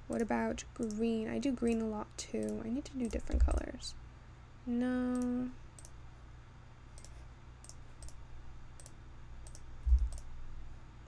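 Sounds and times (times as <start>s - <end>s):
steady low hum: 0.0s - 11.0s
computer mouse clicks: 0.8s - 3.7s, 5.1s - 6.0s, 6.9s - 10.3s.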